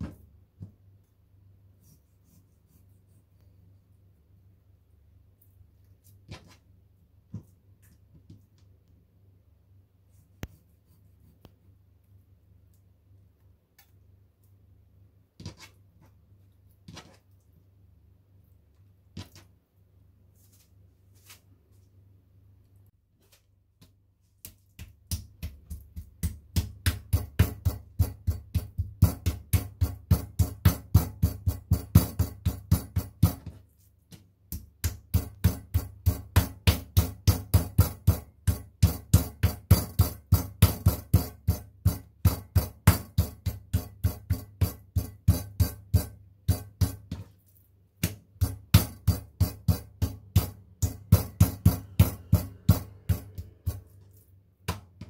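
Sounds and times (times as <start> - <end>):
meat mallet pounding meat: 24.4 - 33.6, 34.4 - 47.3, 48.0 - 53.9.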